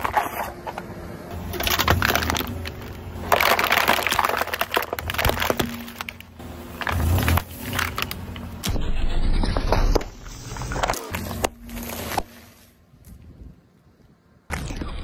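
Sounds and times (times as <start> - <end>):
plastic bottle crunching under tyre: 1.4 - 8.6.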